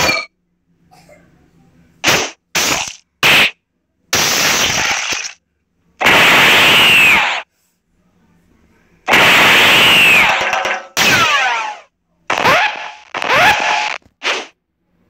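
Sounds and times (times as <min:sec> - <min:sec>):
noisy blast: 0:09.1 - 0:11.4.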